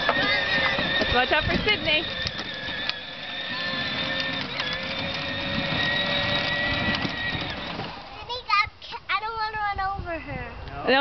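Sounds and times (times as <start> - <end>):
electric motor whining: 0.0 - 8.2.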